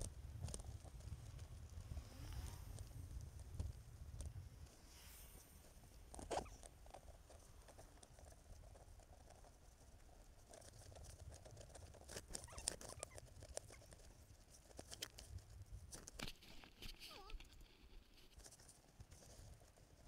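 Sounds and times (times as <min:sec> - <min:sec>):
bicycle rumble on pavement: 0:00.0 - 0:09.6.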